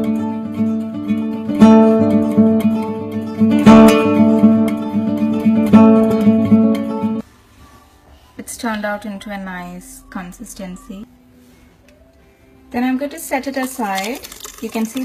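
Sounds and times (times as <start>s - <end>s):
acoustic guitar strumming: 0.0s - 7.2s.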